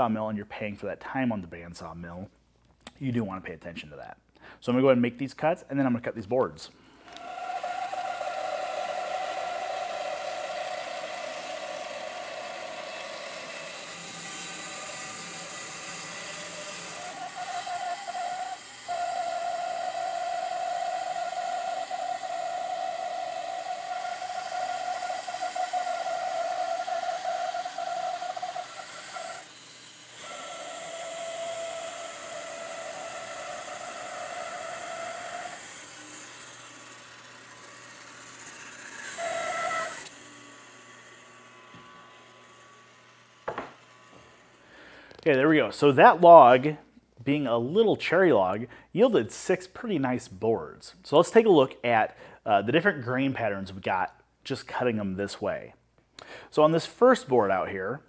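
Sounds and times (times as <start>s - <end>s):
bandsaw cutting wood: 7.0s - 45.3s.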